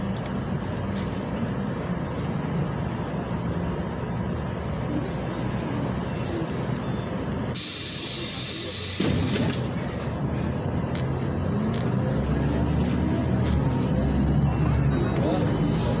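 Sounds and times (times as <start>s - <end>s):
bus diesel engine running: 0.0s - 16.0s
compressed air hiss: 7.6s - 9.1s.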